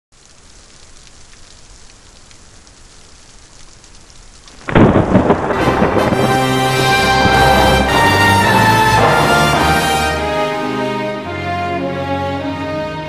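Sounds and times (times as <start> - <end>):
rain hiss: 0.1 - 12.9
loud thunderclap: 4.5 - 10.7
sustained music tones: 4.7 - 13.0.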